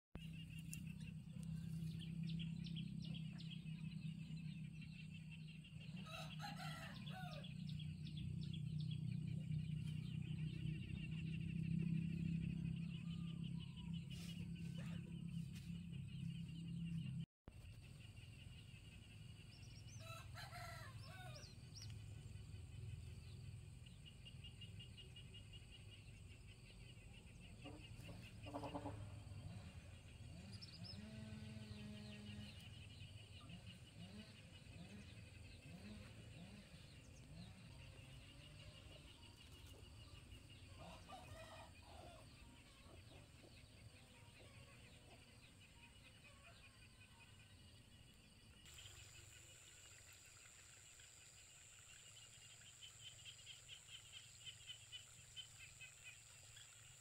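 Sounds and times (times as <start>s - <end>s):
distant rooster crowing: 6.0s - 7.5s, 20.0s - 21.5s, 40.8s - 42.3s.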